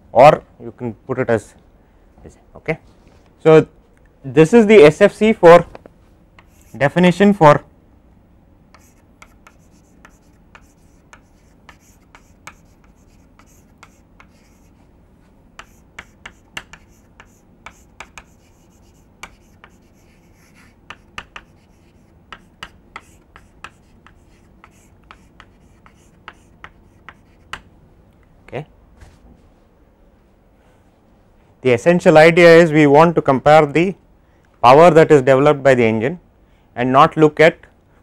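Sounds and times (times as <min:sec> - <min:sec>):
chalk tapping and scratching on blackboard: 0:06.4 - 0:06.9, 0:08.7 - 0:14.9, 0:15.6 - 0:27.7.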